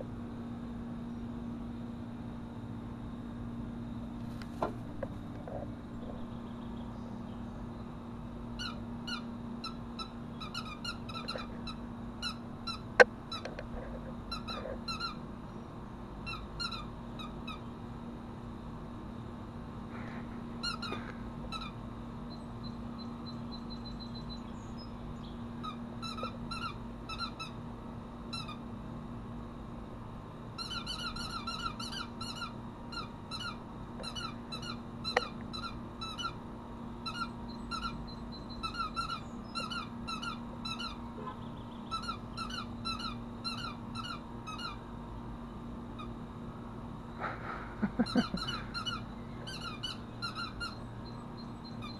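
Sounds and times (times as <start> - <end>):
air conditioner hum: 0.0 - 51.9
squeaky dog toy squeaking: 38.6 - 41.0, 48.2 - 50.8.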